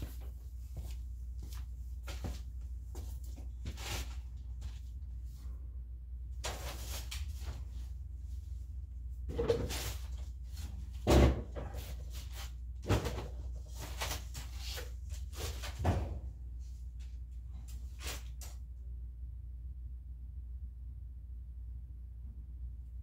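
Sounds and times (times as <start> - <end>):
objects rustling and clattering: 6.4 - 7.9, 9.3 - 16.3.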